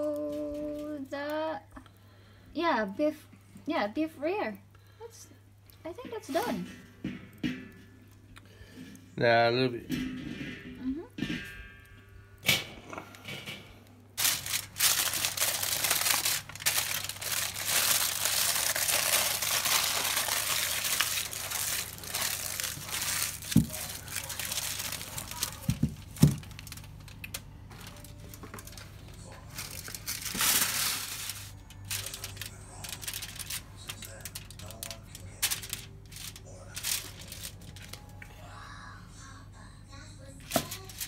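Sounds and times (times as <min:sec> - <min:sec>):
aluminium foil crinkling: 0:00.0 - 0:02.0, 0:06.0 - 0:07.8, 0:14.2 - 0:38.4, 0:40.4 - 0:41.0.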